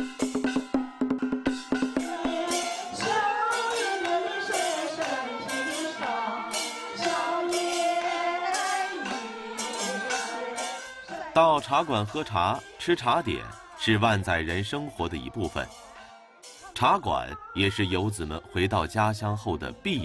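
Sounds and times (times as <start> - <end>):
jingling percussion: 0.0 - 20.0
woman singing wavering melody: 1.9 - 11.4.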